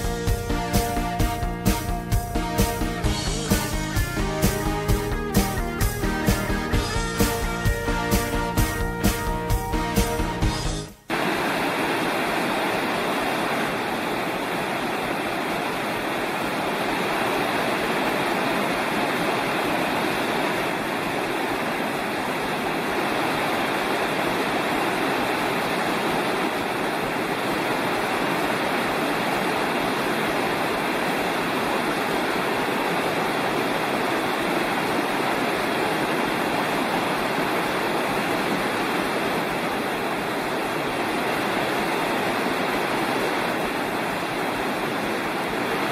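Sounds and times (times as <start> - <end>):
creek rushing over rocks: 11.1 - 45.9.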